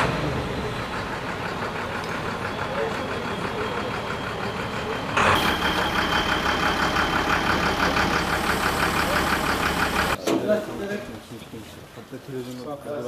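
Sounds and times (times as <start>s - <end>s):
truck diesel engine running: 0.0s - 10.2s.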